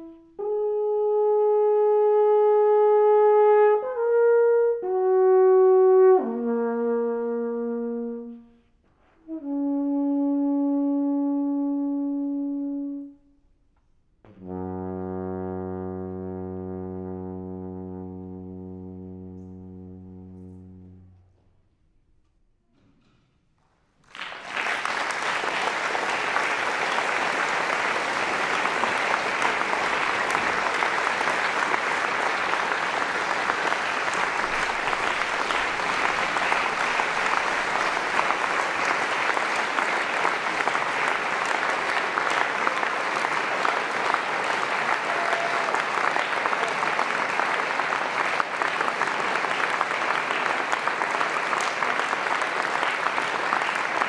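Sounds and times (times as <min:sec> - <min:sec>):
large audience applauding: 0:24.0 - 0:54.0.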